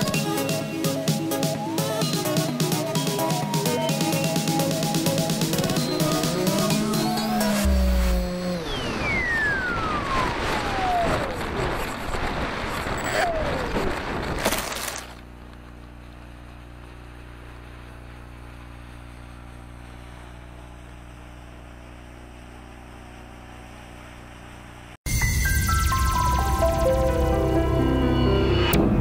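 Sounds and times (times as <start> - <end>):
electric motor and propeller whine: 0.0 - 25.0
low electrical hum: 14.7 - 25.0.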